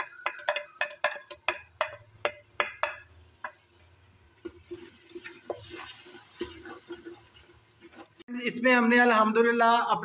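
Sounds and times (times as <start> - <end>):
metal spoon knocking on pot: 0.0 - 3.6
spoon scraping pot: 0.0 - 3.6, 4.4 - 8.2
spices sizzling in oil: 0.0 - 8.3.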